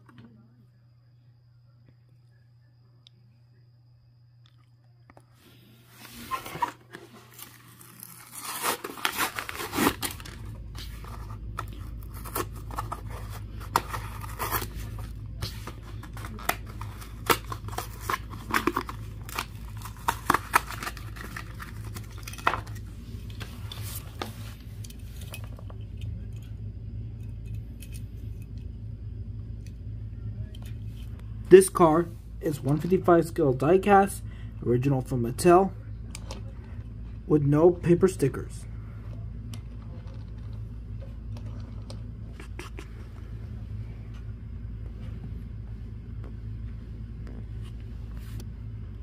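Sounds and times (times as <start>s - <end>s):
steady low hum: 0.0s - 49.0s
plastic packaging tearing and crackling: 6.3s - 22.9s.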